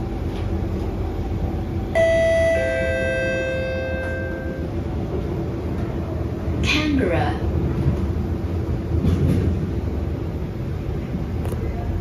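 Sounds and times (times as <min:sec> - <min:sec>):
train running noise: 0:00.0 - 0:12.0
two-note descending chime: 0:02.0 - 0:04.6.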